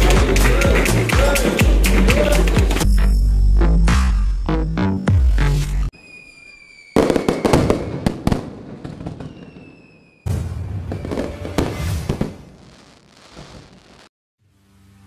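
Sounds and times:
firework rocket whistling: 0:05.9 - 0:14.1
firework bursting and crackling: 0:06.0 - 0:14.1.

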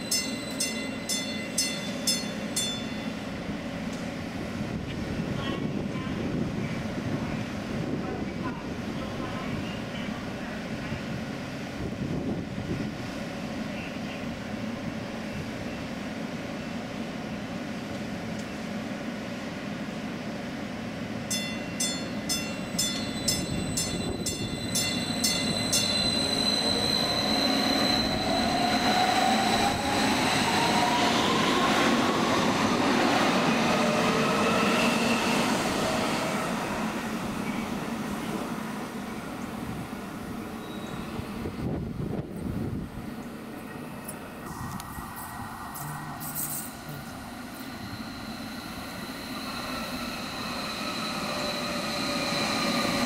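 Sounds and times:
train bell ringing: 0:00.0 - 0:03.5, 0:21.3 - 0:28.9, 0:45.8 - 0:53.0.

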